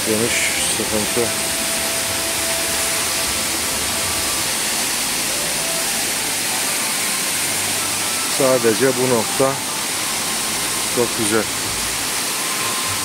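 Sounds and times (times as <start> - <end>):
waterfall splashing into pool: 0.0 - 13.0.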